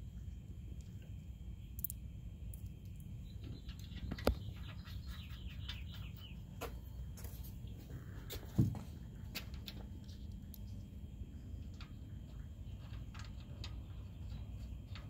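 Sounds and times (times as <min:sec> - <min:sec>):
bird chirping: 0:03.0 - 0:06.6.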